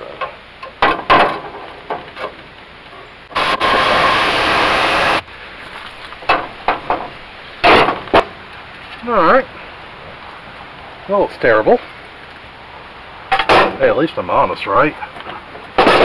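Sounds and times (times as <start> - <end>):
reciprocating saw cutting metal: 3.3 - 5.2.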